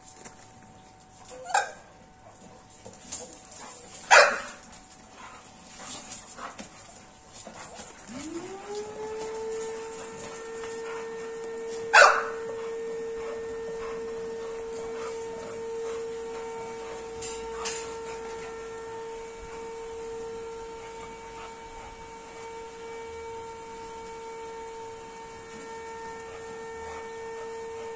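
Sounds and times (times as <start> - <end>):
dog barking: 4.1 - 4.6, 11.8 - 14.1
machine hum: 4.6 - 27.9.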